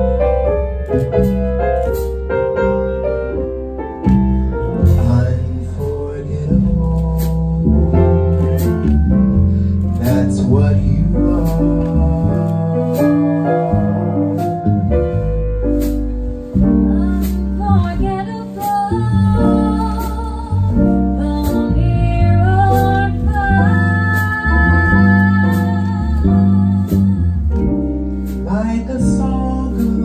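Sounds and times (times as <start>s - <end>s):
jazz band playing a ballad: 0.0s - 30.0s
woman singing: 16.9s - 27.9s.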